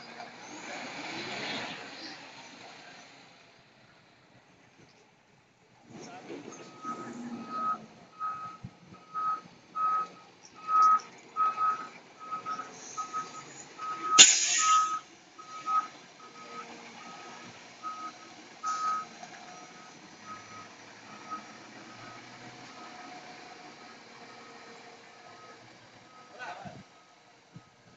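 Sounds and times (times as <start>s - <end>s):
reversing alarm beeping: 6.7s - 23.0s
air brake hiss: 14.2s - 15.0s.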